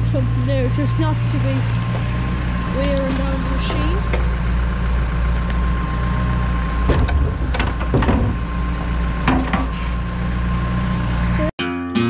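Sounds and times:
tractor engine running: 0.0 - 11.5
metallic knocks and clanks: 2.8 - 4.4, 6.8 - 9.8.

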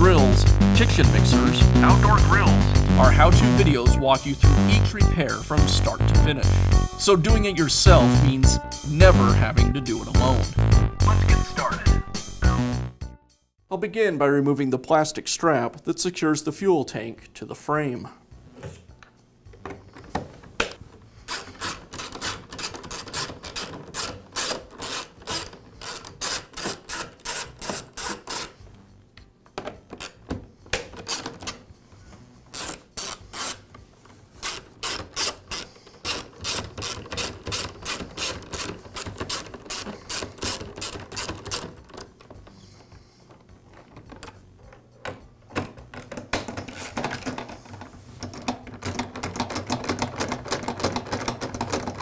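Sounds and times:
socket ratchet clicking: 21.3 - 28.6, 34.4 - 42.2.

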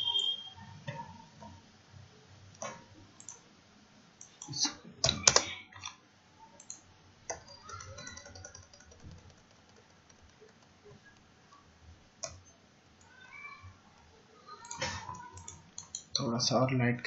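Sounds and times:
mouse and keyboard clicks: 6.6 - 11.2, 14.6 - 16.1.

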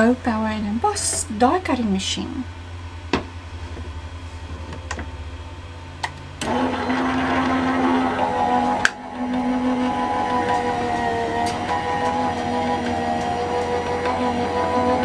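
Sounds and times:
electric motor running: 6.4 - 15.0.

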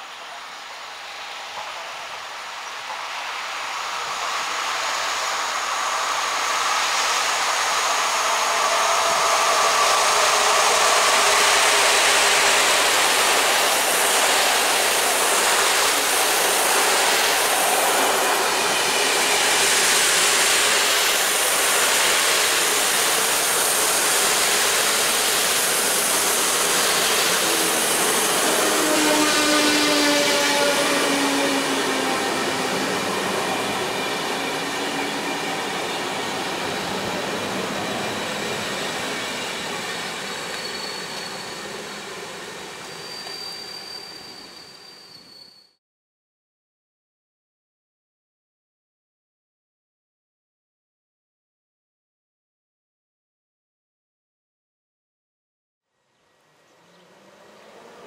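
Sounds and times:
passenger train passing: 0.0 - 45.6, 56.8 - 58.0
train wheels rolling on rails: 0.0 - 45.6.

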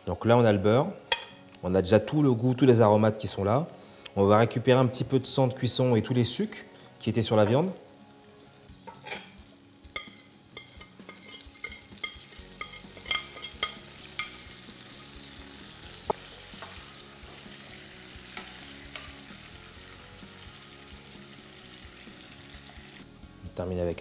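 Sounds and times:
butter sizzling in frying pan: 7.6 - 23.5
spatula scraping and knocking pan: 10.0 - 14.5.

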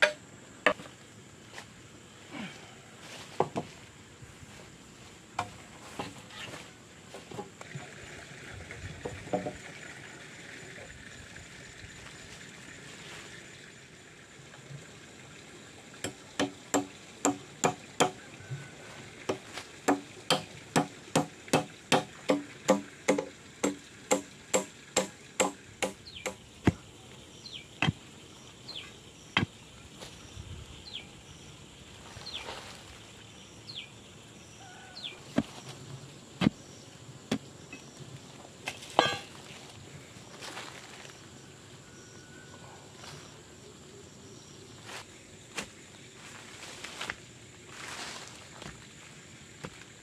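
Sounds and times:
hammer striking bamboo pole: 0.0 - 0.9, 16.0 - 18.2, 19.3 - 26.8, 39.0 - 39.3
pole thudding into stony soil: 38.7 - 39.4.

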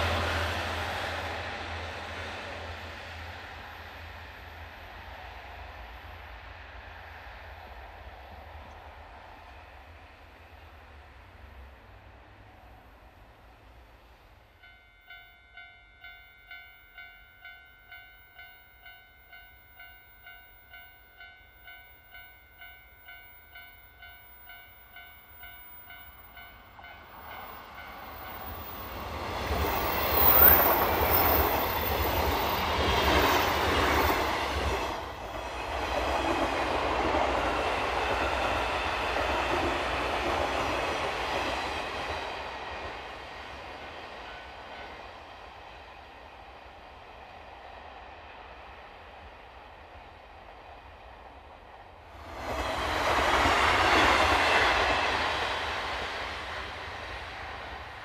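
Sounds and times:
train passing: 0.0 - 58.0
level crossing bell ringing: 14.6 - 28.5.

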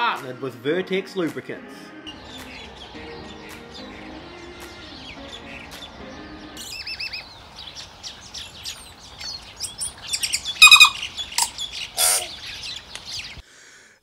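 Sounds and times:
songbird warbling whistles: 6.6 - 13.4.

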